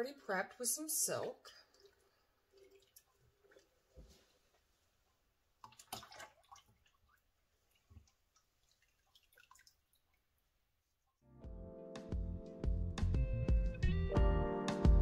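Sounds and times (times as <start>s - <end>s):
liquid pouring and splashing: 0.3s - 4.2s, 5.6s - 10.2s.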